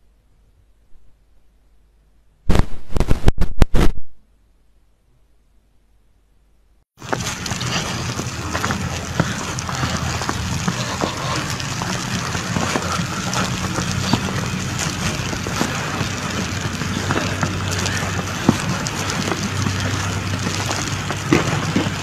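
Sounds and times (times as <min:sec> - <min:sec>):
crackles and clicks: 0:02.4 - 0:04.2, 0:07.0 - 0:22.0
low hum: 0:04.0 - 0:22.0.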